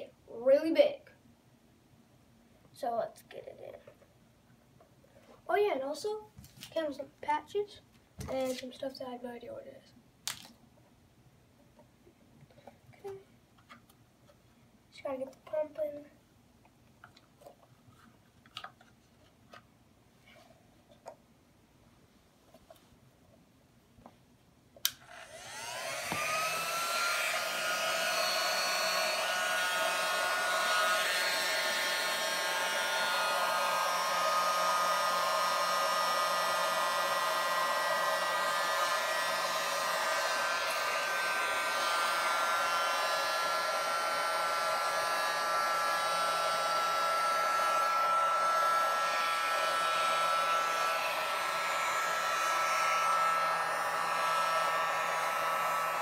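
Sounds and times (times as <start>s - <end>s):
electric air pump whining: 24.9s - 56.0s.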